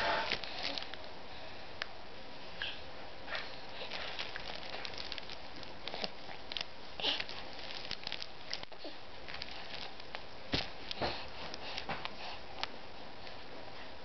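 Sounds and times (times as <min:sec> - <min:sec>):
fabric rustling on play mat: 0:03.3 - 0:12.4.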